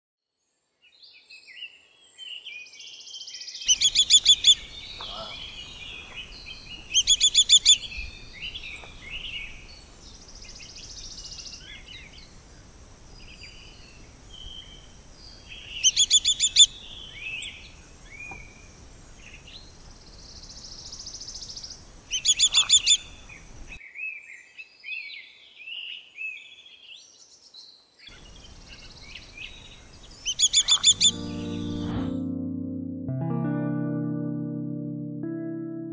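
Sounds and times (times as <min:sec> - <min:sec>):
bird fast high call series: 0:03.7 - 0:06.2, 0:30.3 - 0:32.1
soft bird chirps: 0:03.7 - 0:12.4, 0:13.1 - 0:25.1, 0:26.3 - 0:31.9.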